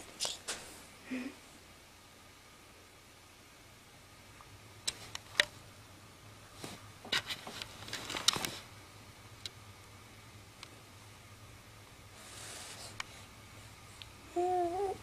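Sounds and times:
rustling near microphone: 6.4 - 8.8.

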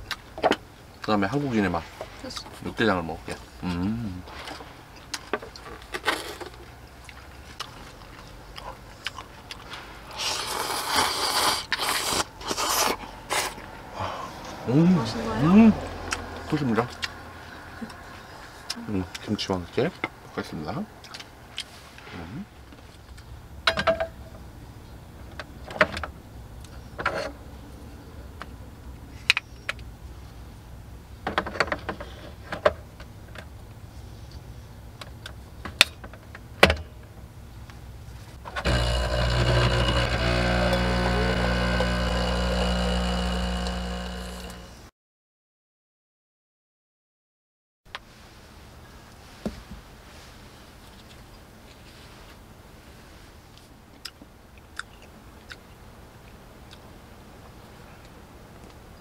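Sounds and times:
loud noodle slurp: 10.1 - 13.6
faint low hum: 37.3 - 44.9.

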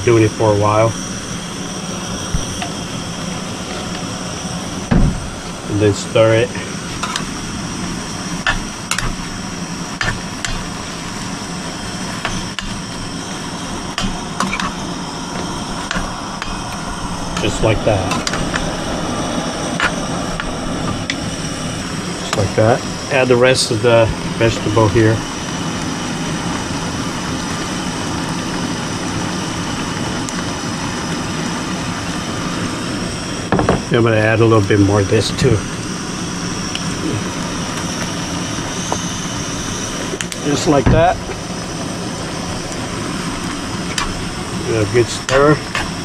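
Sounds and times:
gas burner roaring: 0.0 - 46.0
food sizzling: 1.0 - 23.2.

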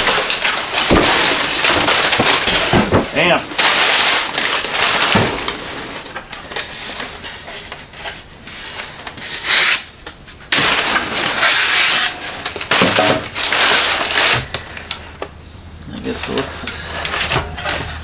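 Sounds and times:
packing material and cardboard rustling: 0.0 - 18.0.

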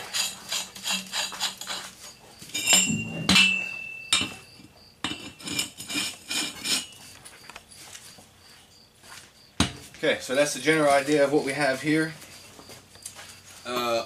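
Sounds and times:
pipe threads grating: 0.0 - 7.4
metallic clanks of steel pipe: 2.5 - 4.4.

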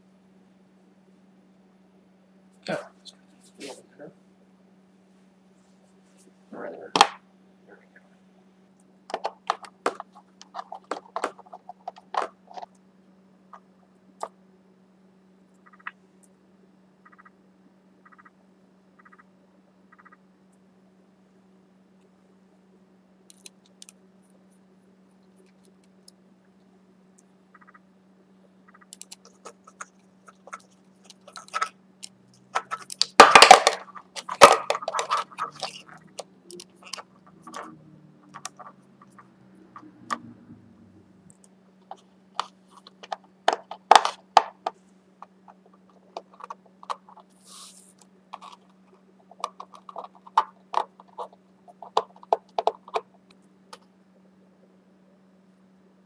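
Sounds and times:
faint steady hum: 0.0 - 56.0
plastic parts clicking and scraping: 9.1 - 12.7, 29.0 - 40.2, 41.9 - 53.8.

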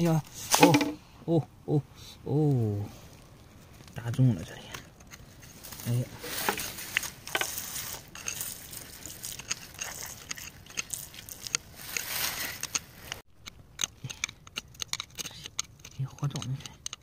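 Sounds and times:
crackling ticks on gritty stone: 6.5 - 17.0.

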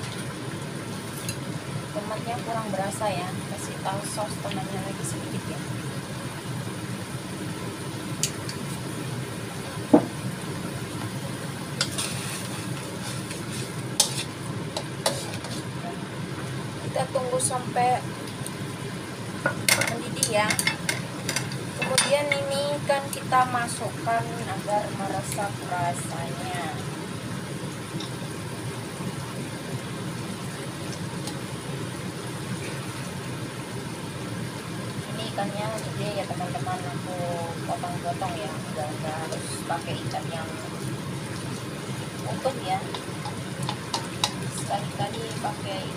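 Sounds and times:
gas stove burner hissing: 0.0 - 45.9
low steady hum: 0.0 - 45.9
sauce simmering and sizzling: 0.0 - 45.9
spatula scraping a wok: 11.8 - 15.8
chopsticks clicking on wok: 42.9 - 44.4.

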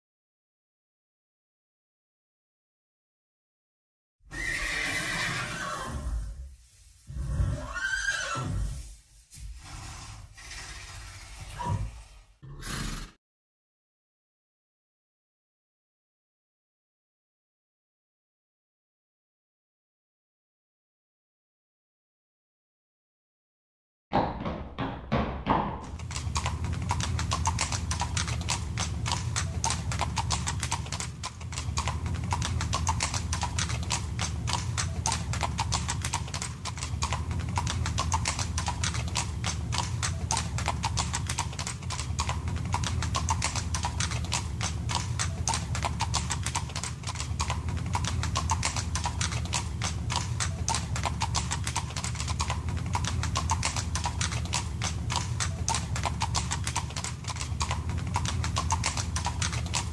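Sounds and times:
horse hooves clip-clopping: 24.2 - 59.9
low steady rumble: 25.9 - 59.9.

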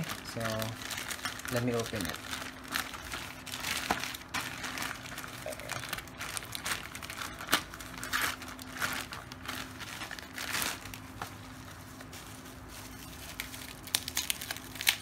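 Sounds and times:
plastic pouch crinkling: 0.0 - 15.0.

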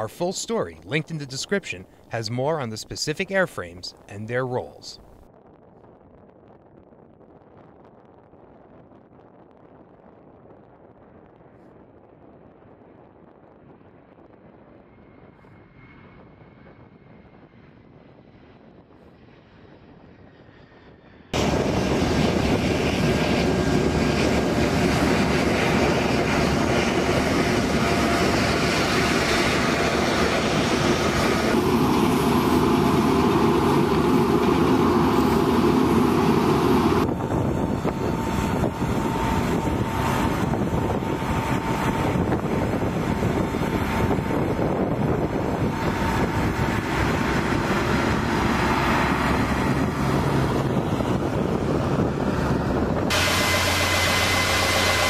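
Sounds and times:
jet engines running: 0.0 - 5.2, 14.9 - 55.0
steady whine: 21.3 - 55.0.

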